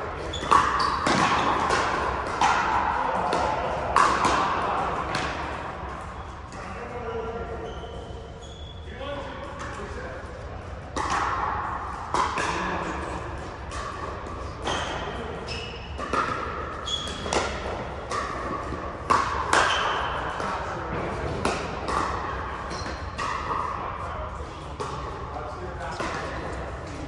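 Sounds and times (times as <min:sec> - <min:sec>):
hits from neighbouring courts: 0:00.2 - 0:05.5, 0:10.9 - 0:23.8.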